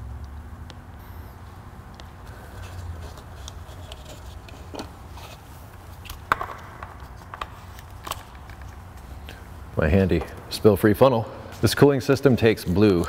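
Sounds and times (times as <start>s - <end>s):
funnel knocks and clicks: 6.1s - 8.6s.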